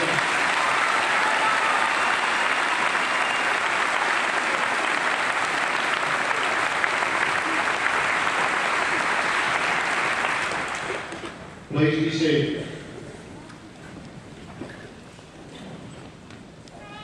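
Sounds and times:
large audience applauding: 0:00.0 - 0:11.4.

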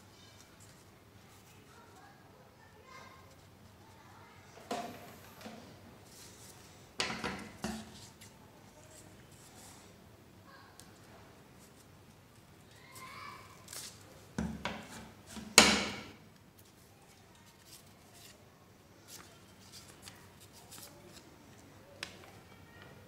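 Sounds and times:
paper rustling and folding: 0:16.6 - 0:18.4, 0:19.0 - 0:22.4.

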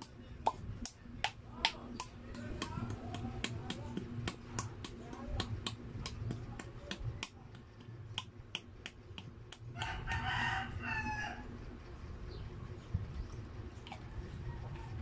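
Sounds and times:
rooster crowing: 0:09.8 - 0:11.6.

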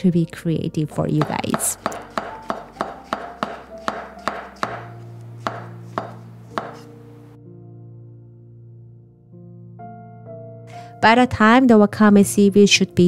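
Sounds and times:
soft background music: 0:00.0 - 0:13.0
knife slicing on wooden board: 0:01.3 - 0:07.0.

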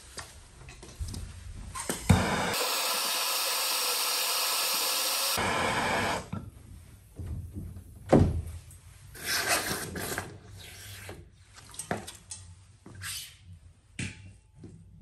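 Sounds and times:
tools scraping and rubbing on pipe: 0:09.1 - 0:13.6.

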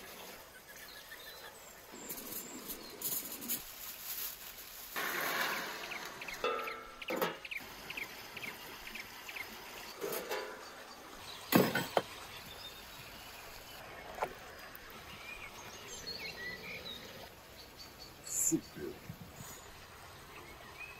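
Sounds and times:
small birds chirping: 0:00.0 - 0:04.3, 0:05.4 - 0:20.9
tray and utensils clattering: 0:05.0 - 0:07.5, 0:10.0 - 0:10.7, 0:11.5 - 0:12.1.

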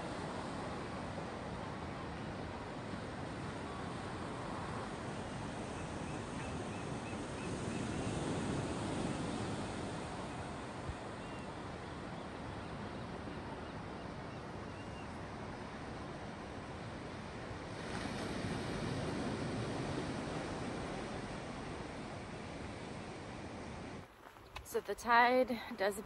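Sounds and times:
ocean surf washing on beach: 0:00.0 - 0:14.6, 0:15.2 - 0:24.0.

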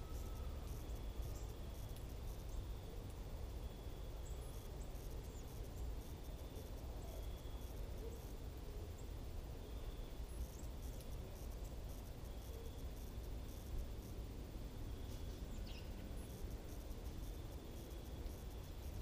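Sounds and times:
faint high chirps: 0:00.0 - 0:02.6
insects trilling: 0:00.0 - 0:19.0.

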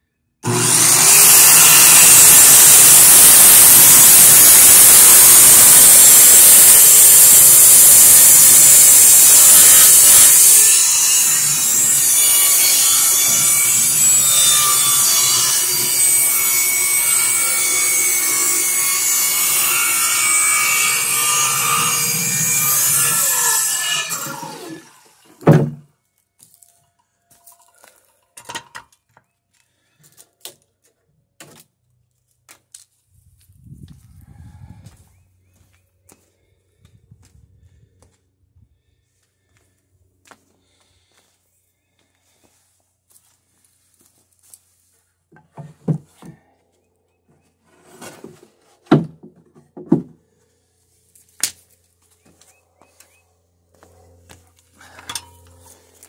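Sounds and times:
circular saw cutting wood: 0:00.4 - 0:25.8, 0:53.0 - 0:56.0
loud thunk: 0:25.4 - 0:25.8
wooden boards knocking together: 0:25.4 - 0:25.8, 0:48.2 - 0:50.2.

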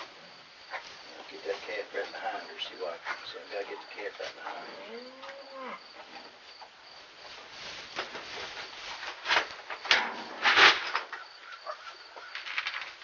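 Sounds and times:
high insect chirring: 0:00.0 - 0:07.0
rustling of plastic bucket: 0:07.2 - 0:11.2, 0:12.3 - 0:13.0.

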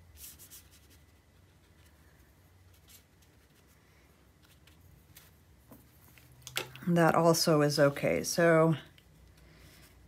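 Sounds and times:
brush strokes on paper: 0:00.0 - 0:06.3.

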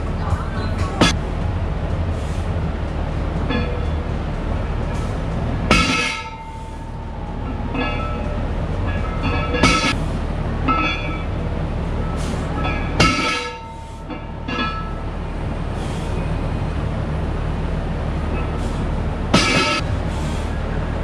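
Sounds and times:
steady low rumble: 0:00.0 - 0:21.0
barbell plates clanking: 0:03.4 - 0:04.0, 0:04.8 - 0:10.0, 0:10.6 - 0:15.0, 0:19.3 - 0:19.9.

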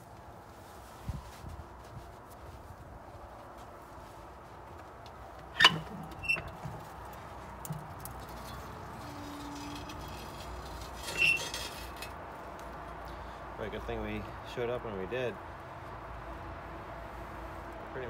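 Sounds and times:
metal door clanking: 0:05.6 - 0:06.8.

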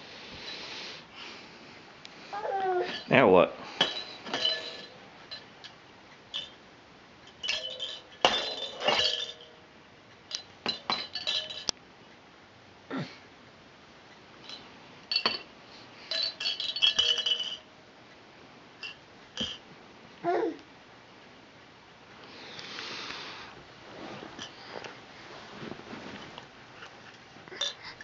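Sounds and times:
plastic toys clinking and rattling: 0:07.3 - 0:09.5, 0:16.1 - 0:17.7.

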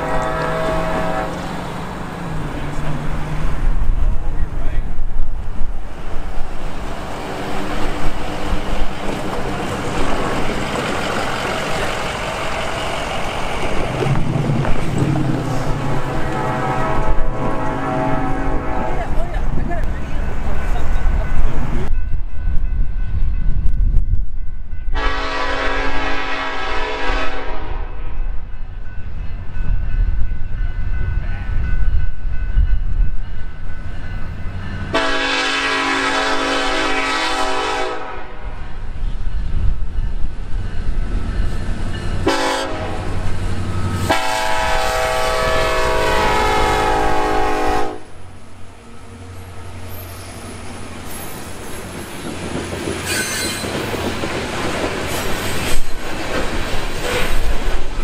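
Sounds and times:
locomotive horn blasts: 0:00.0 - 0:01.5, 0:15.7 - 0:19.2, 0:24.9 - 0:28.0, 0:34.9 - 0:38.5, 0:42.2 - 0:43.2, 0:44.0 - 0:48.1
train wheels clacking over rail joints: 0:07.3 - 0:16.6
faint wheel squeal: 0:53.0 - 0:53.8.

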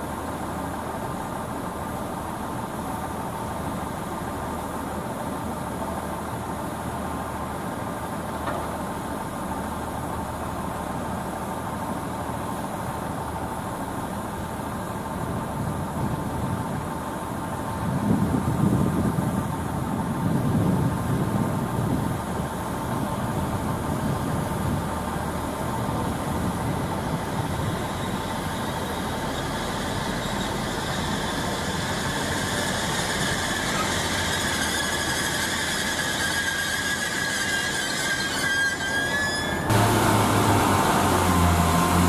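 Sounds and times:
diesel train engines rumbling: 0:00.0 - 0:42.0
high brake squeal: 0:27.3 - 0:41.6.

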